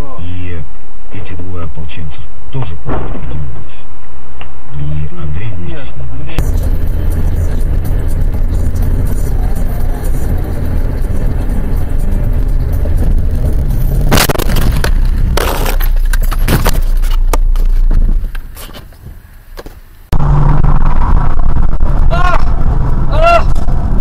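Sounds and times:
car engine and road rumble: 5.2s - 24.0s
crash knocks and clatter: 11.4s - 18.8s.

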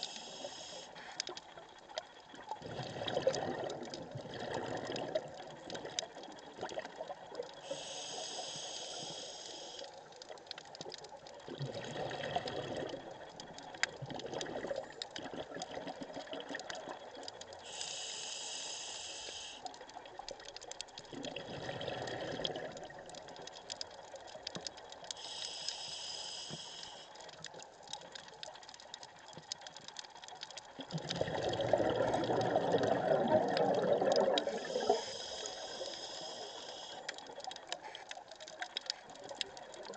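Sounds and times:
regulator inhale hiss: 0.0s - 1.4s, 7.6s - 10.0s, 17.6s - 19.8s, 25.1s - 27.4s, 34.3s - 38.1s
exhaled bubbles gurgling: 0.0s - 39.9s.

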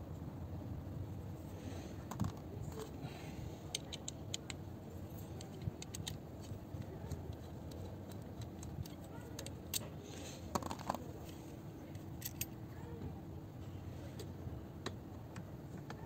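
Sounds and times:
low background rumble: 0.0s - 16.0s
metal ratchet clicks and rattles: 3.7s - 9.9s.

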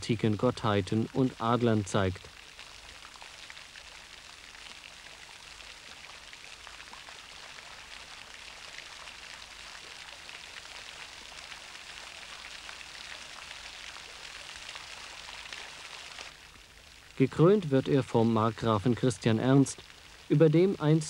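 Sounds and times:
fountain water splashing: 0.0s - 21.0s.

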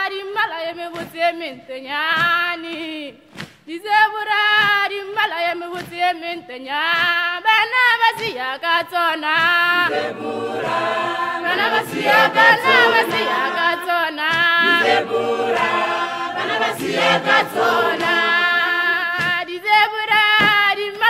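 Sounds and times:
choir singing a cappella: 8.8s - 21.0s.

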